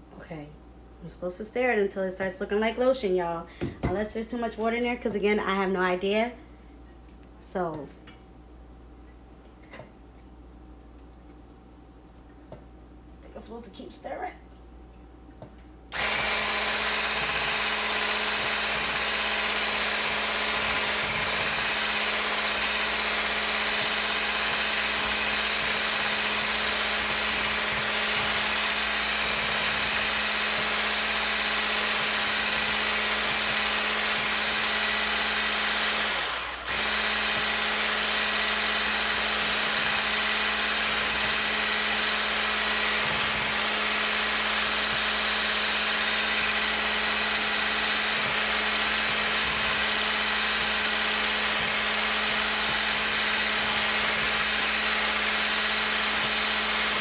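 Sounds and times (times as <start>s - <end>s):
electric whisk running in steel bowl: 16.0s - 57.0s.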